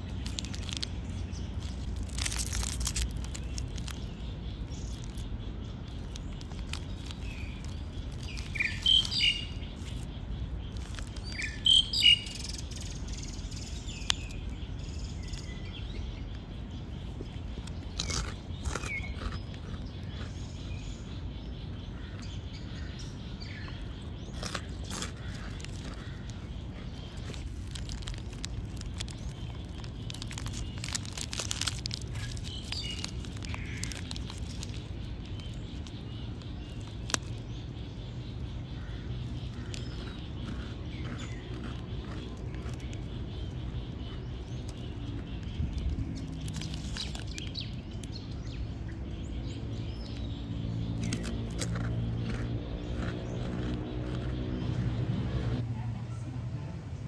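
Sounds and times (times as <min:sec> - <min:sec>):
bird chirps: 0:00.0 - 0:55.6.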